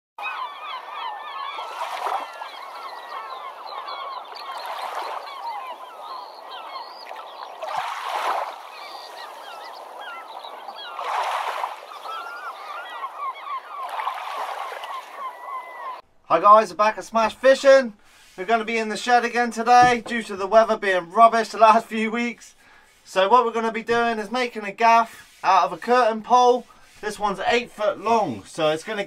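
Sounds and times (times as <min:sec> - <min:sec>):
flock of birds calling: 0:00.2 - 0:16.0, 0:24.9 - 0:29.0
waves washing on shore: 0:01.6 - 0:02.9, 0:03.5 - 0:12.8, 0:13.7 - 0:15.2.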